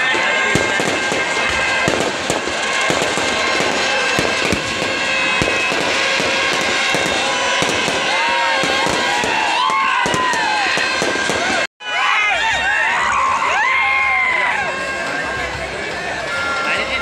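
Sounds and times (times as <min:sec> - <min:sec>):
fireworks bangs and crackles: 0:00.0 - 0:11.7.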